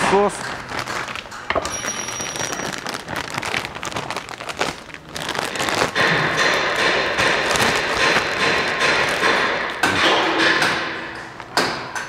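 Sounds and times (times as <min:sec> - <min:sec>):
plastic bag crinkling: 0:00.1 - 0:09.5.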